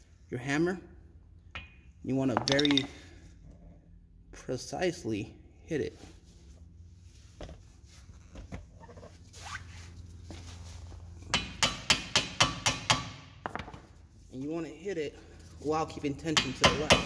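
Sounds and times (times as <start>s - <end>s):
hammer striking metal impact driver: 11.3s - 13.3s, 16.3s - 17.0s.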